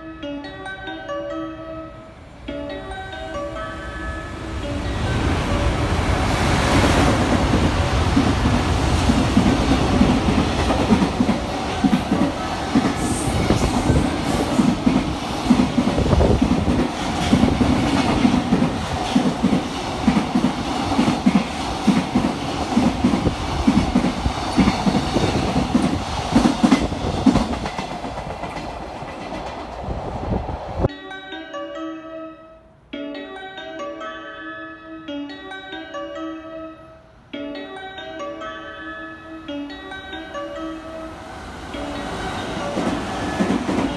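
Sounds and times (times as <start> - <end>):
freight train passing: 0.0 - 43.9
wheels clickety-clack: 6.7 - 29.9.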